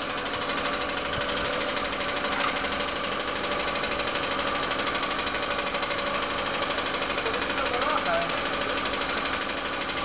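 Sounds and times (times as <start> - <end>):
air compressor pulsing: 0.0 - 10.0.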